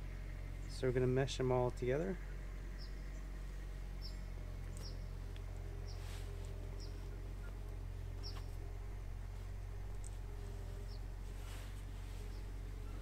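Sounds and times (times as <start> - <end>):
steady low hum: 0.0 - 13.0
small bird chirping: 2.2 - 8.7, 9.9 - 13.0.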